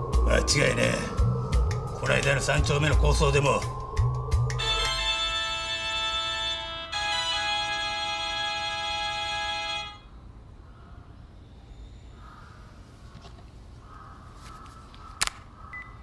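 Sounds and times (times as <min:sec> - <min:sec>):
held music chord: 0:00.0 - 0:10.1
low steady hum: 0:00.0 - 0:13.0.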